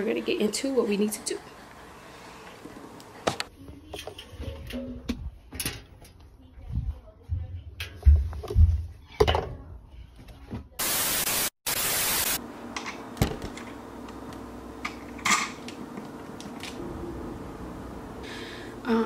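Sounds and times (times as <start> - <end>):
loud hiss: 10.8 - 12.4
faint steady hum: 16.7 - 19.0.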